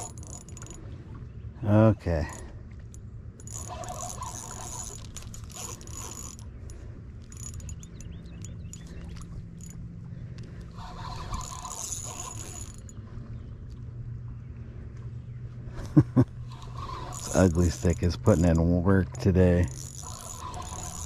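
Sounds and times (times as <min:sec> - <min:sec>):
fishing reel whirring: 0:00.0 - 0:00.9, 0:02.2 - 0:13.0, 0:16.4 - 0:18.7, 0:19.4 - 0:21.0.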